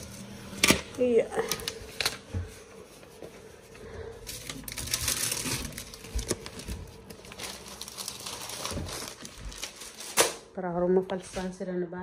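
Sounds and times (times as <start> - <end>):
rustling: 1.6 - 10.3.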